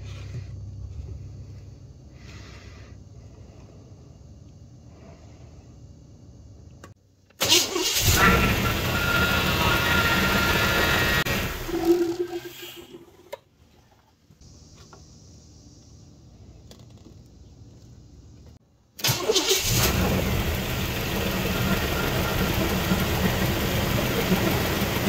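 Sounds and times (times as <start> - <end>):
car engine running and idling: 7.4 - 11.7, 19.3 - 25.0
engine cranking: 7.4 - 12.1, 19.0 - 25.0.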